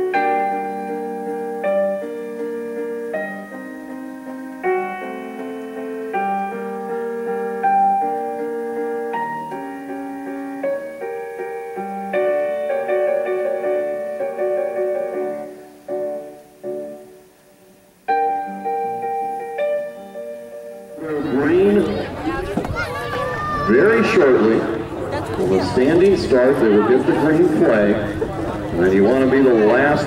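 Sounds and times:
solo piano music: 0:00.0 - 0:22.5.

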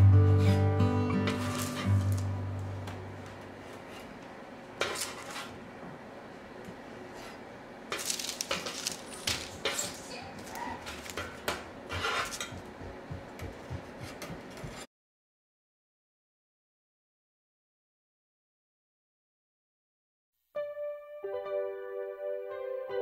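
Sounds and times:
metal spatula scraping sheet pan: 0:01.2 - 0:02.2, 0:04.8 - 0:05.6, 0:08.0 - 0:12.6.

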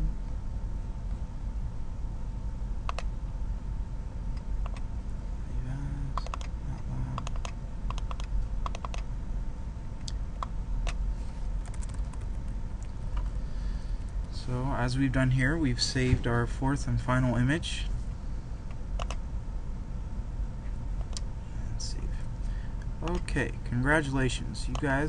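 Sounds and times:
low hum: 0:00.0 - 0:25.0
keyboard typing: 0:02.9 - 0:03.1, 0:04.6 - 0:04.9, 0:06.2 - 0:09.0, 0:11.6 - 0:12.6, 0:19.0 - 0:19.2
mouse buttons clicking: 0:06.2 - 0:06.5.

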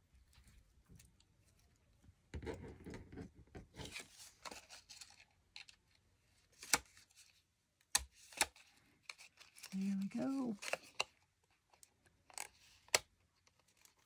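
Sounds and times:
paper rustling and scraping: 0:02.5 - 0:05.3.

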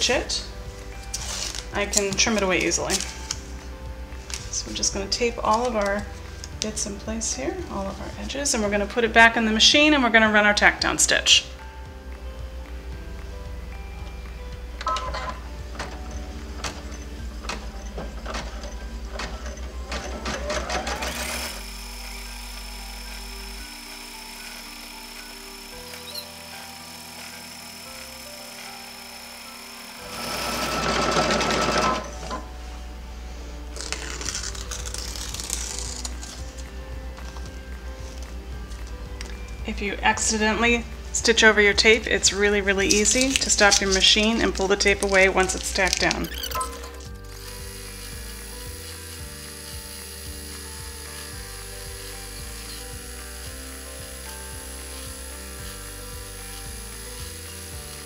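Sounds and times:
embroidery machine sewing: 0:18.2 - 0:21.7, 0:25.9 - 0:32.1.

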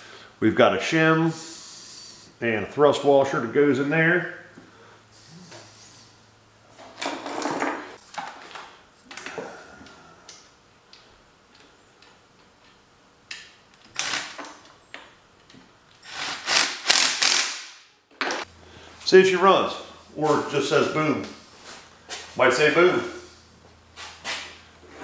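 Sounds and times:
impact driver running: 0:16.0 - 0:17.6.

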